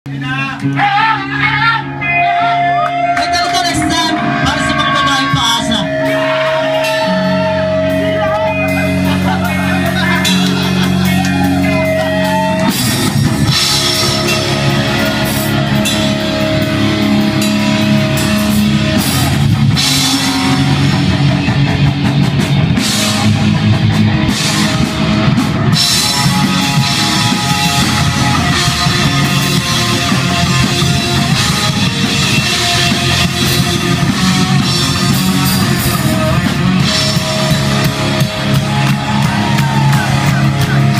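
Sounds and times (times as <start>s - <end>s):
bass guitar: 0.0s - 40.9s
distorted electric guitar: 0.1s - 40.9s
drum kit: 0.1s - 40.9s.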